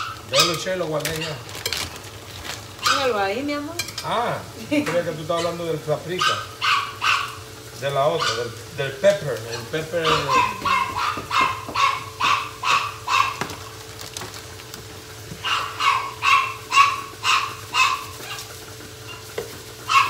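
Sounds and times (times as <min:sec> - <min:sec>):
dog barking high-pitched: 0:02.8 - 0:03.2, 0:06.2 - 0:07.4, 0:08.2 - 0:08.5, 0:09.5 - 0:13.6, 0:15.4 - 0:18.5, 0:19.1 - 0:19.3.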